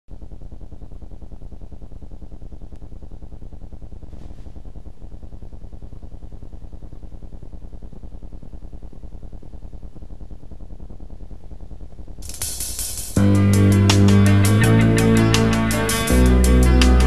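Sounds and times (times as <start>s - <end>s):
low electrical hum buzzing: 0.1s - 17.0s
bright hiss: 12.2s - 13.4s.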